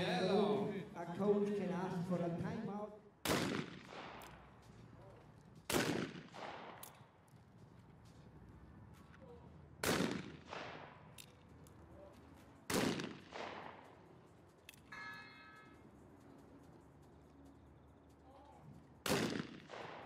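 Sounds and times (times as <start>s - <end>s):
shotgun shots: 3.2s - 4.4s, 5.7s - 7.0s, 9.8s - 11.0s, 12.7s - 13.9s, 19.0s - 20.0s.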